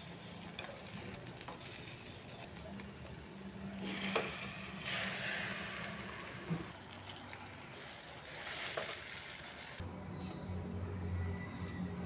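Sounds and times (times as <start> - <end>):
food sizzling in a frying pan: 3.8 - 9.8.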